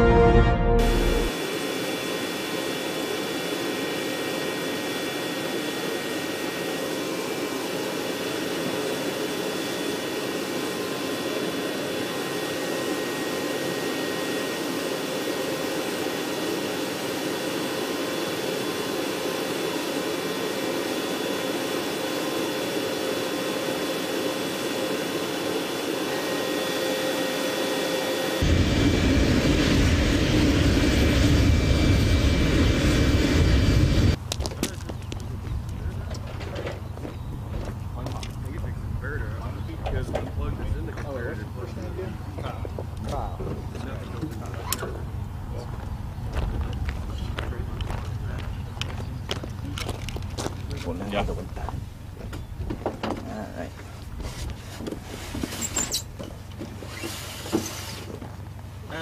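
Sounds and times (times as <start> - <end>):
helicopter turbine whine: 0.0 - 59.0
deep helicopter rumble: 28.4 - 54.2.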